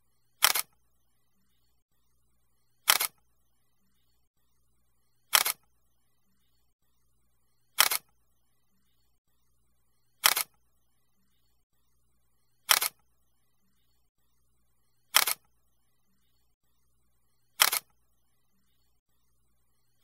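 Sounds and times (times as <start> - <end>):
camera shutter double click: 0.4 - 0.7, 2.9 - 3.2, 5.3 - 5.6, 7.8 - 8.1, 10.2 - 10.5, 12.7 - 13.0, 15.2 - 15.4, 17.6 - 17.9.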